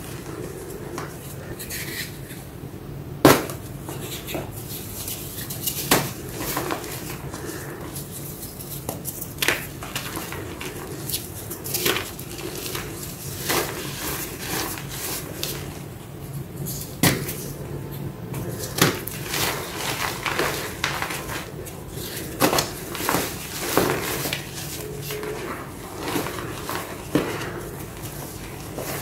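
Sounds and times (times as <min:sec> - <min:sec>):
chalk crunching and crumbling: 0:04.0 - 0:15.8, 0:18.4 - 0:29.0.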